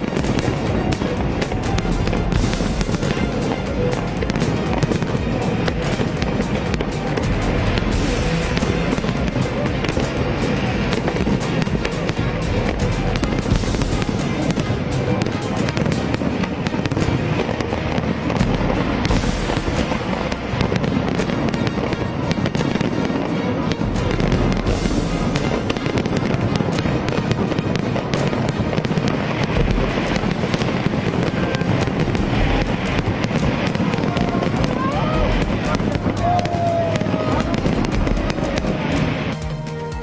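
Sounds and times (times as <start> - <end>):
fireworks crackling and popping: 0.0 - 40.0
music playing: 0.0 - 40.0.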